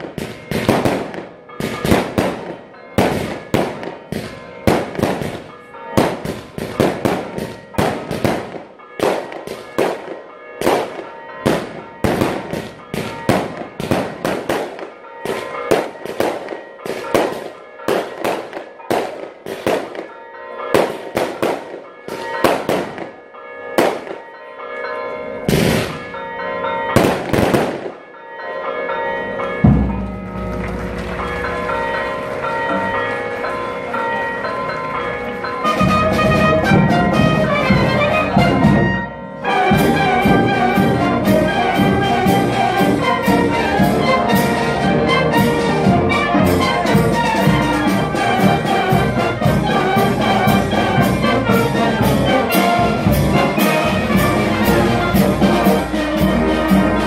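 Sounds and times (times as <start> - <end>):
firecrackers bursting: 0.0 - 23.2, 23.8 - 24.3, 25.5 - 26.0, 27.0 - 28.0
church bells ringing: 0.0 - 57.0.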